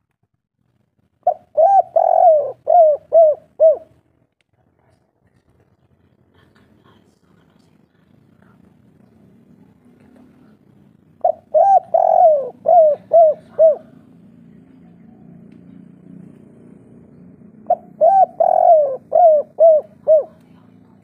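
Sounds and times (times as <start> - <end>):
dove cooing: 1.2 - 4.0, 10.5 - 14.2, 17.2 - 20.8.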